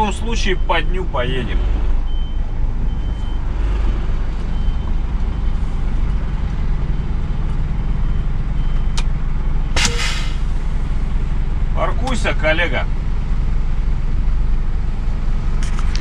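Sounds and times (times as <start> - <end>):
truck diesel engine running: 0.0 - 16.0
click: 8.7 - 9.1
air brake hiss: 9.8 - 10.8.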